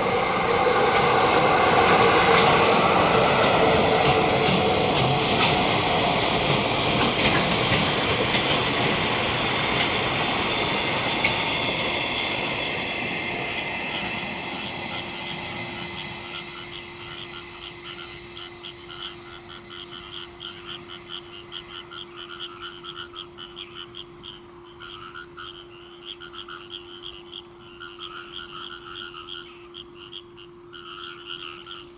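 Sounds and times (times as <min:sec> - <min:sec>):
freight train rolling past: 0:00.0 - 0:24.4
frogs croaking: 0:00.0 - 0:31.9.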